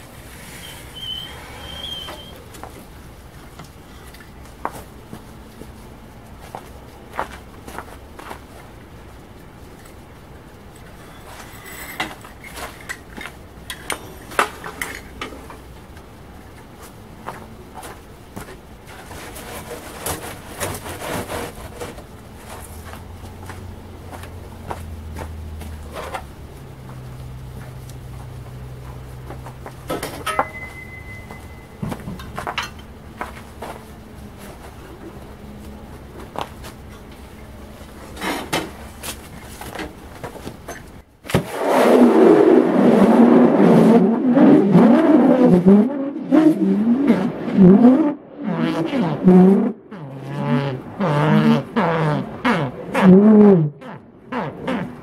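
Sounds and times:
metal tools clanking: 11.0s - 15.4s, 29.9s - 32.9s.

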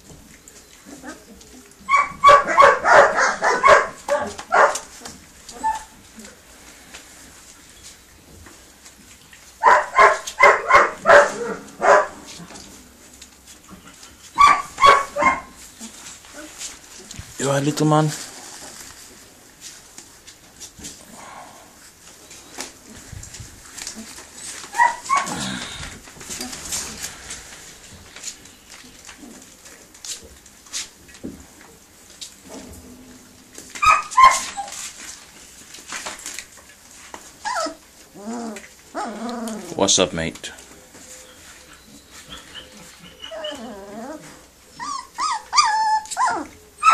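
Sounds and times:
puppy yapping: 0.9s - 6.0s, 9.6s - 12.4s, 14.3s - 16.6s, 24.1s - 25.6s, 33.8s - 34.8s, 37.4s - 39.8s, 42.3s - 46.9s
puppy falling whine: 21.0s - 30.0s, 32.5s - 36.6s, 37.2s - 39.8s, 40.7s - 46.9s.

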